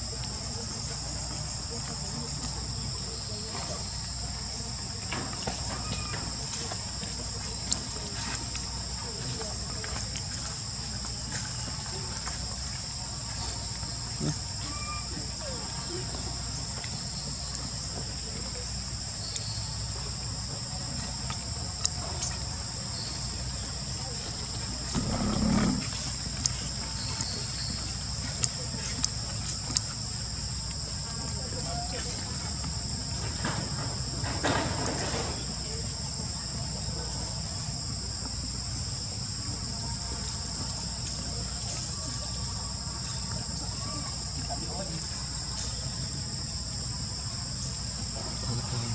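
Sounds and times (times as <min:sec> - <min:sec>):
insects chorus: 0:00.0 - 0:48.9
insects buzzing shrilly: 0:22.3 - 0:30.6.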